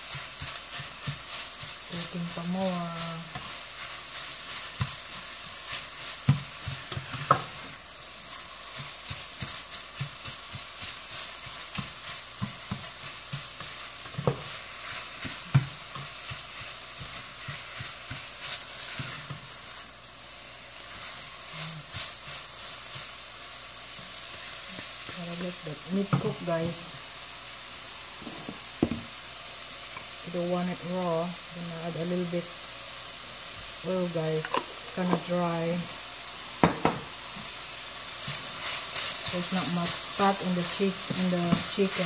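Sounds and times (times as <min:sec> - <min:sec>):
spatula scraping a pan: 0:00.0 - 0:20.0, 0:38.0 - 0:42.0
food sizzling in a skillet: 0:00.0 - 0:42.0
spatula knocking against pan: 0:36.6 - 0:37.1.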